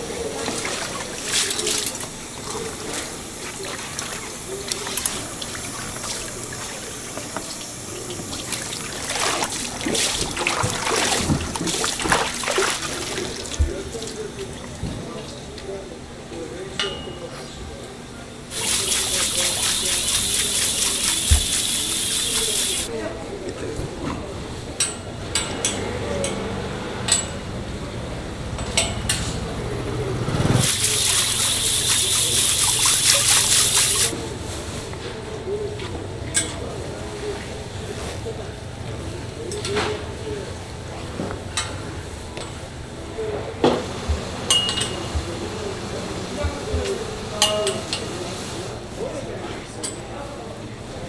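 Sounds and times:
water streaming: 0:00.0 - 0:14.7, 0:18.5 - 0:22.9, 0:30.6 - 0:34.2
water pouring and splashing: 0:00.2 - 0:14.2, 0:18.5 - 0:22.9, 0:30.6 - 0:34.2
hose nozzle spraying water: 0:18.5 - 0:22.9, 0:30.6 - 0:34.2.

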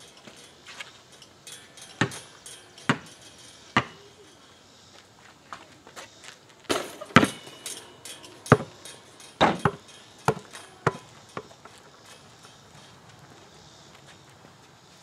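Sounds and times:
ball bouncing on asphalt: 0:03.8 - 0:04.0, 0:09.4 - 0:11.9
basketball hitting hoop: 0:03.8 - 0:04.0, 0:06.7 - 0:07.5, 0:08.5 - 0:08.8, 0:09.4 - 0:11.5.

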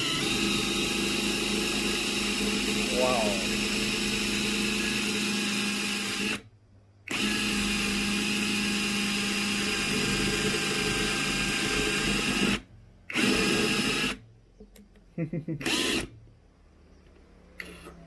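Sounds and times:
impact wrench motor drilling: 0:00.0 - 0:06.4, 0:07.1 - 0:14.2, 0:15.6 - 0:16.1.

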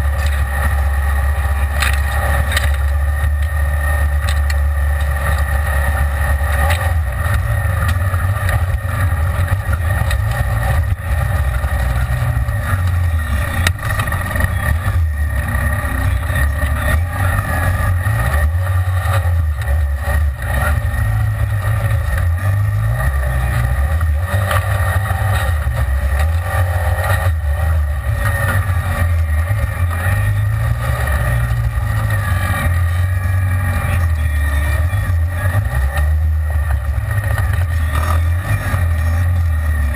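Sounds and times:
engine drone: 0:00.0 - 0:39.9.

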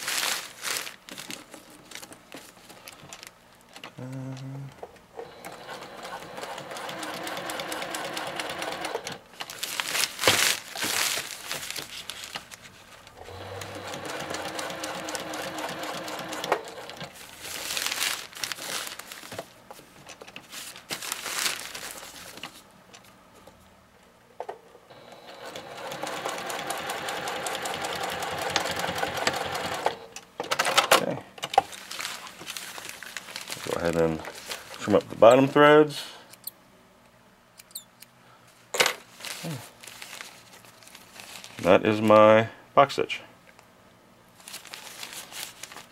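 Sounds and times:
fabric rustling: 0:00.0 - 0:03.4, 0:09.4 - 0:13.2, 0:17.1 - 0:22.7, 0:31.7 - 0:35.1, 0:39.0 - 0:41.7, 0:44.4 - 0:45.9
sewing machine stitching: 0:05.2 - 0:09.2, 0:13.2 - 0:17.1, 0:24.9 - 0:30.1.

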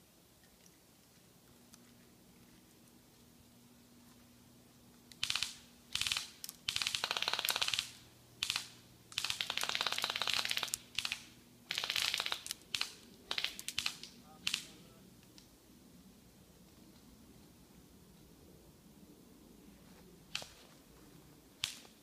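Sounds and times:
airsoft gun firing bursts: 0:05.2 - 0:14.8.

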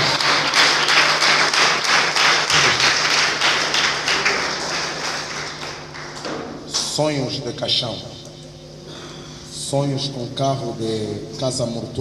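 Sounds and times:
congregation clapping in rhythm: 0:00.0 - 0:07.0.

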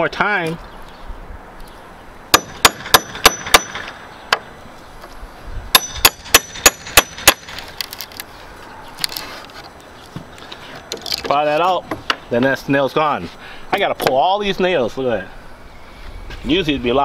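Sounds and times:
hammer striking metal: 0:02.3 - 0:04.4, 0:05.7 - 0:07.5.

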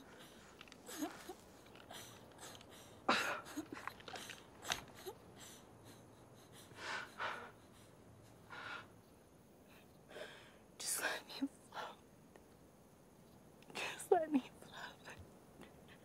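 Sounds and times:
man breathing heavily: 0:00.0 - 0:09.0.

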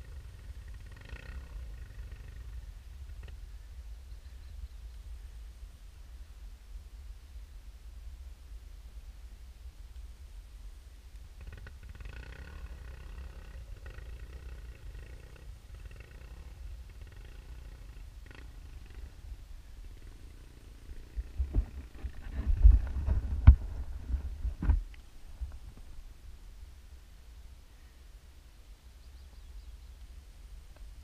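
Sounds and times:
dirt bike engine idling: 0:00.0 - 0:04.8, 0:11.3 - 0:25.6.

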